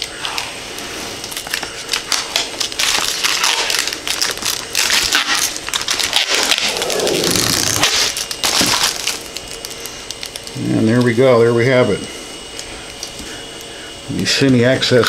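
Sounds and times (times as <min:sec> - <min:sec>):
plastic film peeling and crinkling: 0:00.0 - 0:11.1.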